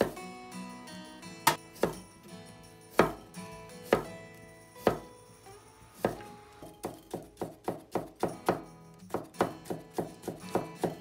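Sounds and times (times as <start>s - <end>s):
soft background music: 0.0s - 11.0s
knife chopping on wooden board: 1.5s - 2.0s, 3.0s - 3.2s, 4.8s - 5.1s, 6.0s - 11.0s.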